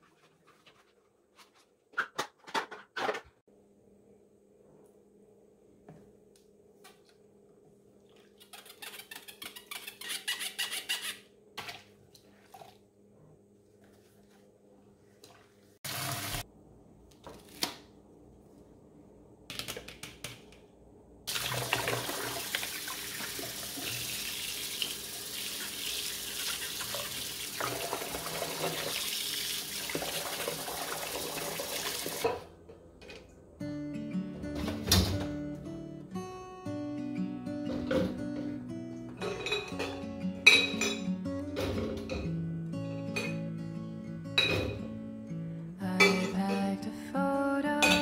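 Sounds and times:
faucet water splashing into tub: 21.3s - 32.2s.

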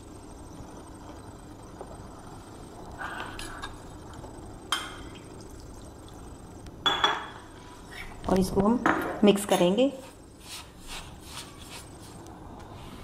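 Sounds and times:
low background hum: 0.0s - 13.0s
utensils and glassware clinking: 8.9s - 9.9s.

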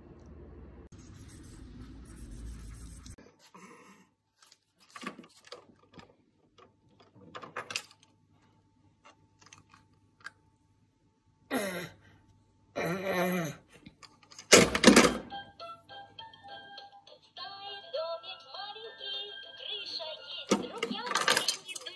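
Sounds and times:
plastic toys clicking and knocking: 4.9s - 8.1s, 20.5s - 21.9s.

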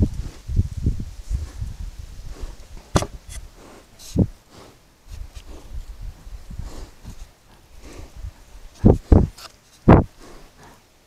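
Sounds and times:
sharp knock: 3.0s - 3.2s
animal bumping camera housing: 3.0s - 3.4s.

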